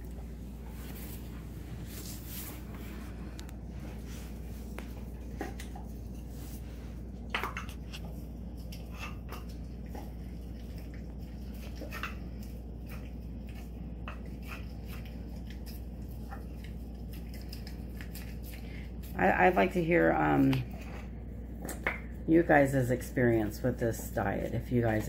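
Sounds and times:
steady low hum: 0.0s - 25.0s
dog chewing bones: 4.9s - 6.3s, 7.2s - 18.7s.

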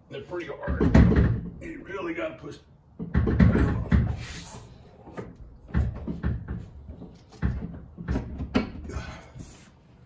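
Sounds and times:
dull knocks and clunks of metal: 0.4s - 1.9s, 2.9s - 4.4s, 5.0s - 9.2s.

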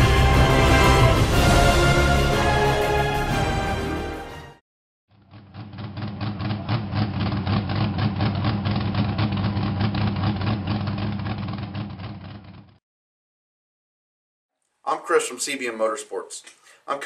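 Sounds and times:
engine idling: 5.1s - 12.6s.

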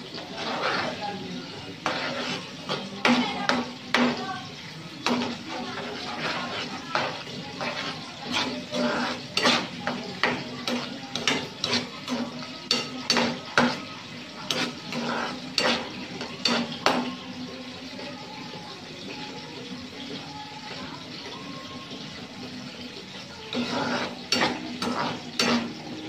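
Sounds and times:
ladle clinking and scraping pan: 0.0s - 4.2s, 4.9s - 17.2s, 23.0s - 26.0s.

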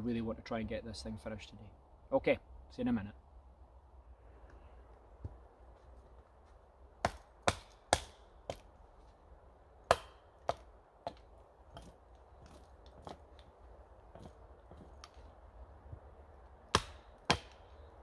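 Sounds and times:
axe chopping wooden pole: 7.0s - 8.7s, 9.8s - 13.4s, 16.7s - 17.8s.

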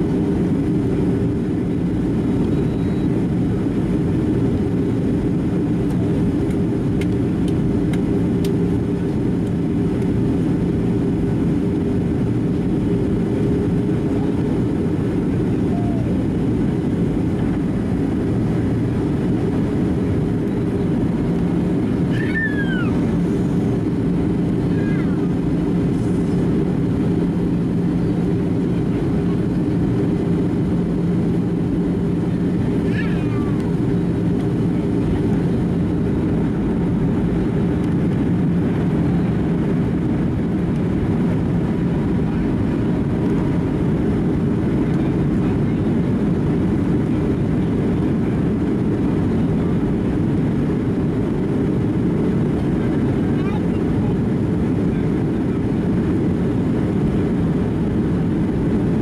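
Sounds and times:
airplane cabin engine rush: 0.0s - 59.0s
short high voice falling: 15.6s - 16.2s, 22.1s - 23.0s.

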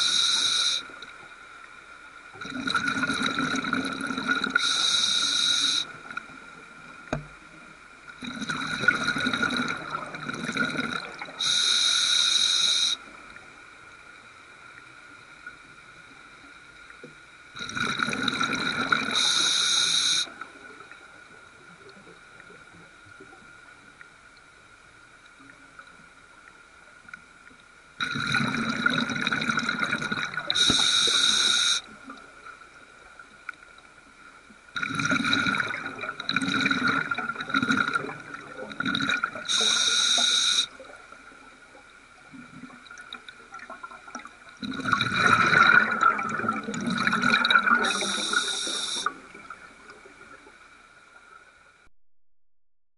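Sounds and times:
quiet diver inhalations: 0.0s - 1.0s, 2.6s - 6.2s, 8.2s - 13.2s, 17.6s - 20.9s, 30.4s - 32.2s, 34.8s - 41.1s, 43.6s - 49.6s
regulator exhaling bubbles underwater: 2.4s - 5.0s, 8.2s - 11.6s, 17.6s - 20.9s, 28.0s - 31.2s, 34.8s - 39.8s, 42.2s - 50.5s.

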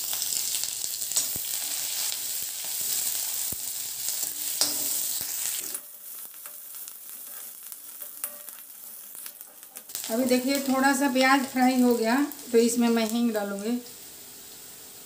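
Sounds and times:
onion sizzling in oil: 0.0s - 15.0s
spatula scraping and tapping pan: 4.2s - 10.0s.

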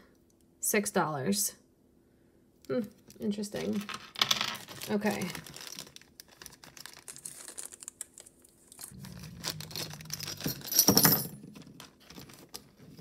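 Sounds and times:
plastic bag crinkling: 3.6s - 13.0s.

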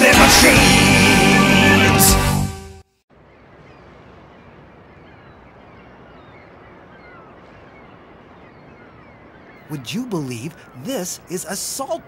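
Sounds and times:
birds chirping: 3.1s - 12.0s.

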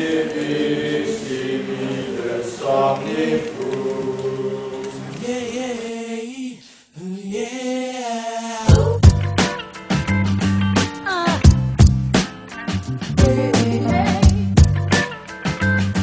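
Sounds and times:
unaccompanied choir singing: 0.0s - 6.6s
small group singing: 0.0s - 9.0s, 13.2s - 14.3s.

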